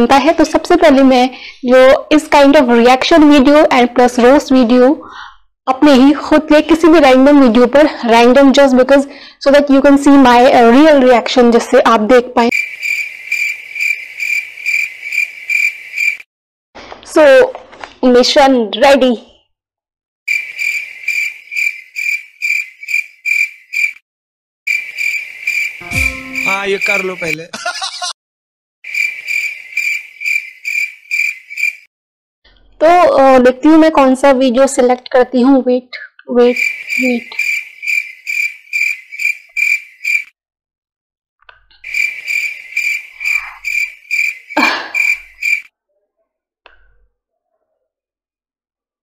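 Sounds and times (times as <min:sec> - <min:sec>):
cricket chirping: 0:12.5 - 0:16.2, 0:20.3 - 0:24.0, 0:24.7 - 0:27.4, 0:28.9 - 0:31.9, 0:36.5 - 0:40.3, 0:41.8 - 0:45.7
brief loud sound: 0:25.8 - 0:27.2.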